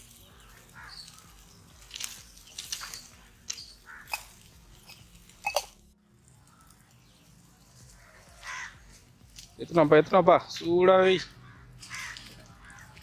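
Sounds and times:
fire crackling: 0.0 - 10.0
faint outdoor background: 0.0 - 13.0.

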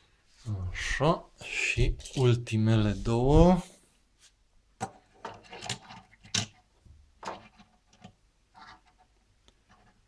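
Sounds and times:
toy cars clicking on wooden shelf: 4.8 - 10.0.

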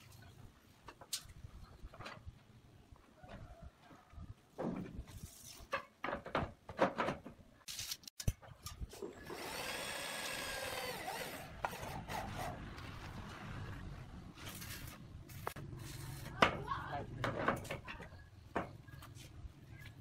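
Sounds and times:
electric drill driving screw: 9.1 - 12.1.

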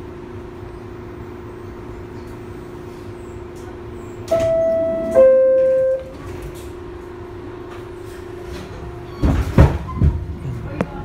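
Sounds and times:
train hum: 0.0 - 11.0
two-note falling door chime: 4.3 - 6.2.

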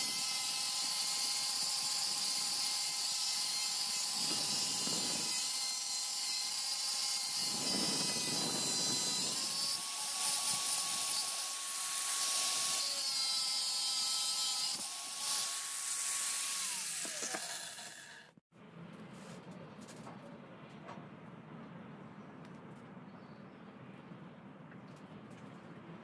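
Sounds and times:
angle grinder cutting steel: 0.0 - 18.4.

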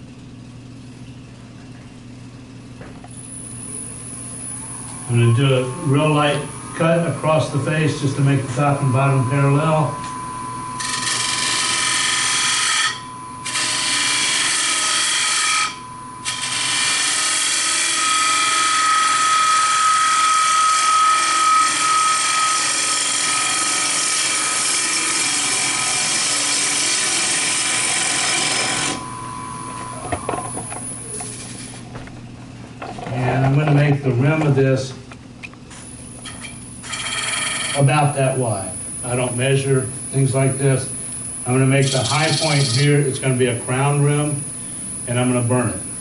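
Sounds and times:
thin steady whistle: 3.2 - 16.6, 28.9 - 31.4
lathe tool scraping wood: 3.2 - 32.0, 35.8 - 40.8, 41.5 - 45.6.

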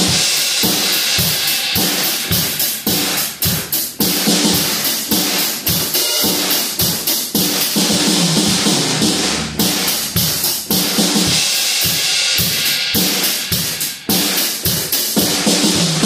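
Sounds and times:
bass drum: 0.0 - 16.0
cymbals: 0.0 - 16.0
snare drum strokes: 0.0 - 16.0.

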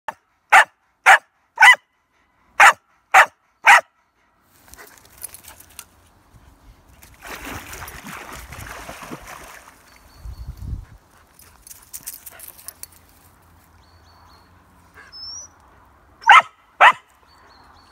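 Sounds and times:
dog barking: 0.5 - 1.8, 2.6 - 3.9, 16.2 - 17.1
water splashing: 7.0 - 10.1.

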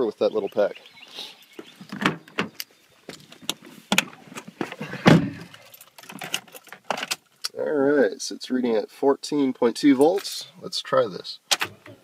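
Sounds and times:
handling clicks and knocks: 1.8 - 7.4.

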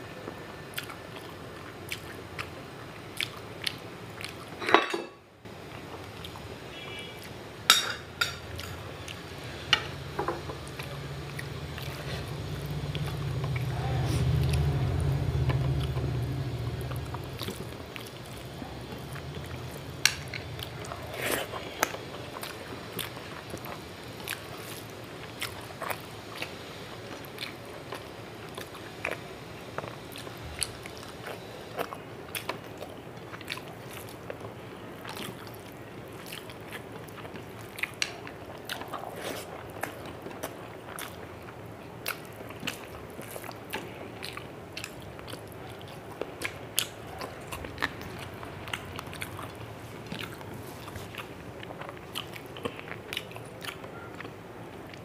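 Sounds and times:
chewing and wet mouth smacks: 1.9 - 2.6, 3.2 - 4.5, 27.2 - 55.0
low hum: 8.8 - 22.0.

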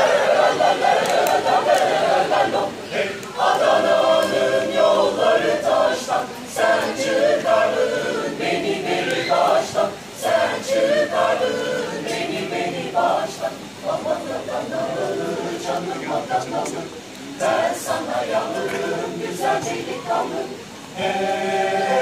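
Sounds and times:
mixed choir singing a cappella: 0.0 - 22.0.

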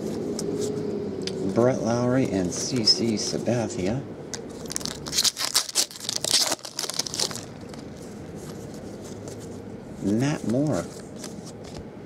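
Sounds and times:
cards rustling: 1.4 - 3.4, 4.3 - 11.9
foil wrapper crinkling and tearing: 4.6 - 8.6.

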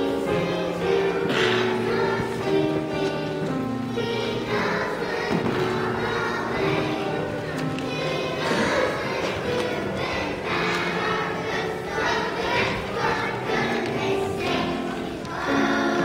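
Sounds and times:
children singing: 0.0 - 16.0
music playing: 0.0 - 16.0.

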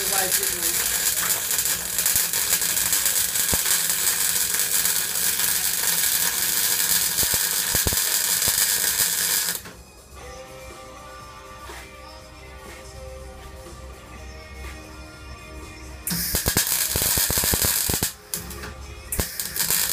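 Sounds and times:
welder arc crackling and hissing: 0.0 - 10.2, 16.0 - 19.9.

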